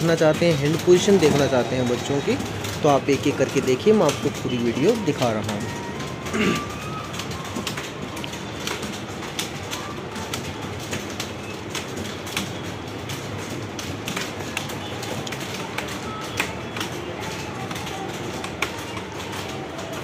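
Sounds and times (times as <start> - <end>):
keyboards typing clatter: 0.0 - 20.0.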